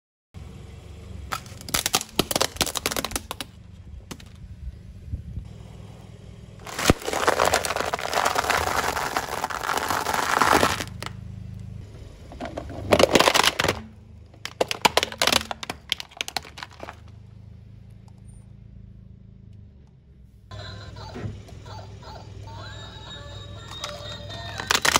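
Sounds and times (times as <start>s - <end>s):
dry pasta crunching under tyre: 1.3s - 4.4s, 6.6s - 11.2s, 12.3s - 17.2s, 23.7s - 24.9s
plastic toy cracking apart: 1.3s - 4.4s, 6.6s - 11.1s, 12.9s - 17.1s, 23.7s - 24.9s.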